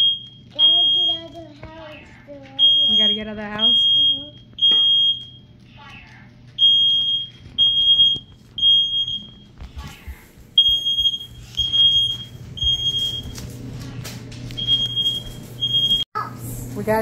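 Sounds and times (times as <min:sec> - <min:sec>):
smoke alarm beeping: 0:00.0 - 0:01.4, 0:02.6 - 0:05.6, 0:06.6 - 0:09.6, 0:10.6 - 0:13.6, 0:14.5 - 0:16.1.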